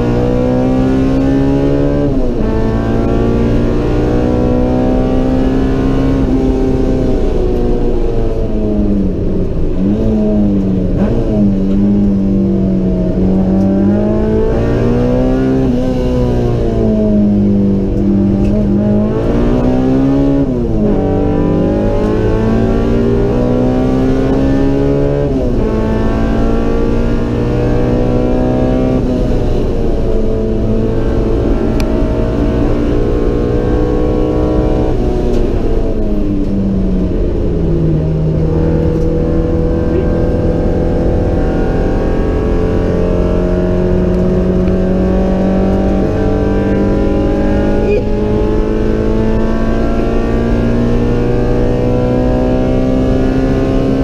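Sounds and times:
car engine accelerating hard: 0.0 - 54.0.

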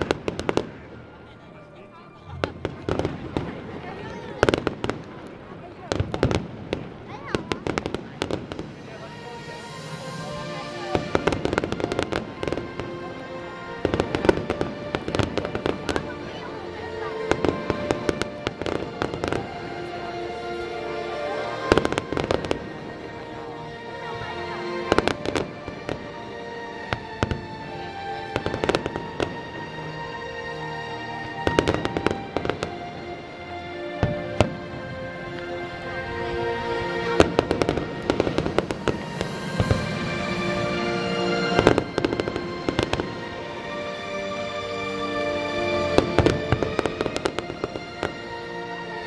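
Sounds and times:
background music: 0.0 - 49.0
fireworks bangs: 2.3 - 12.8, 37.1 - 43.3.

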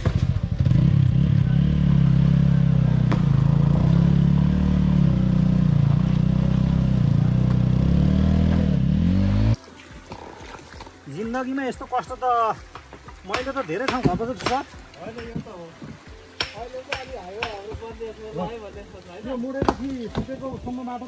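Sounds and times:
motorcycle engine revving: 0.0 - 10.5.

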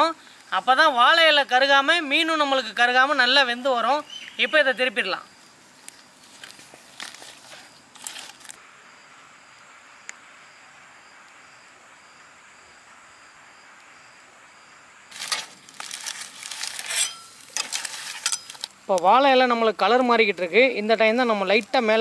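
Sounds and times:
insect chirping: 0.0 - 22.0
outdoor hiss: 0.0 - 22.0
banana leaves rustling: 5.7 - 8.6, 15.1 - 19.3.

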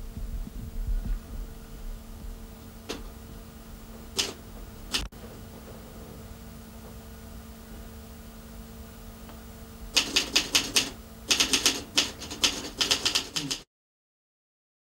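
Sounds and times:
steady low hum: 0.0 - 13.7
rapid sharp clicks: 4.1 - 5.1, 9.9 - 13.6.

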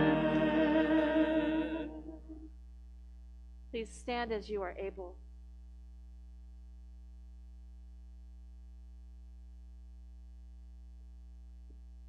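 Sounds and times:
electrical mains hum: 0.0 - 12.0.

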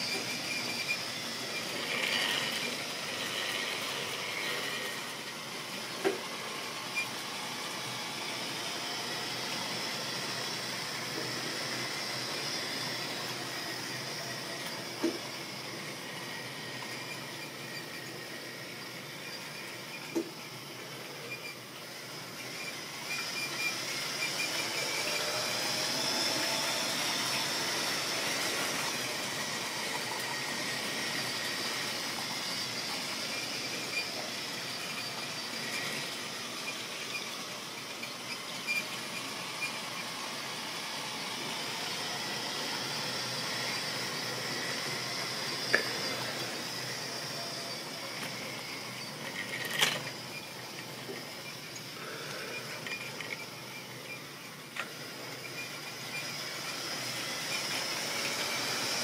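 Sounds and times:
model train motor whining: 0.0 - 59.0
wheels rattling over rails: 47.3 - 55.6.

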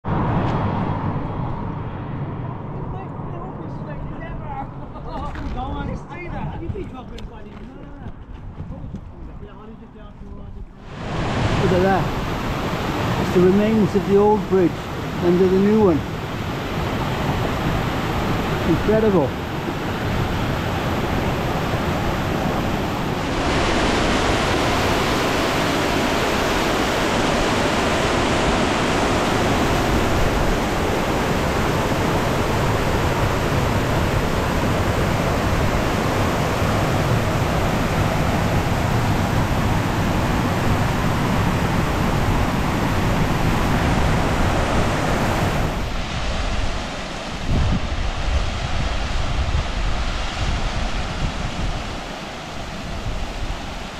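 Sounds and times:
waterfall rushing over boulders: 10.8 - 53.9.

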